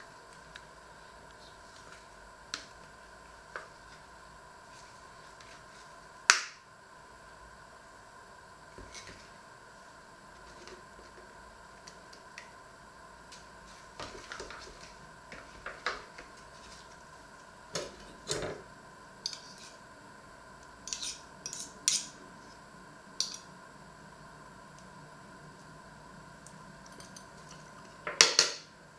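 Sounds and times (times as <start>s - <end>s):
cutlery clinking and scraping on plate: 20.9s - 22.1s.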